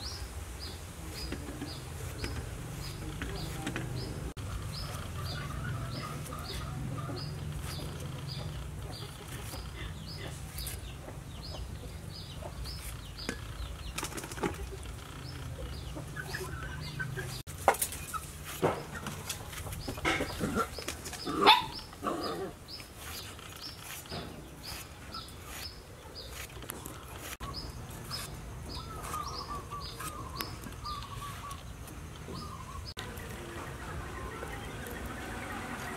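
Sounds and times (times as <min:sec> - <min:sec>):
knife slicing gourd: 0:28.0 - 0:30.6.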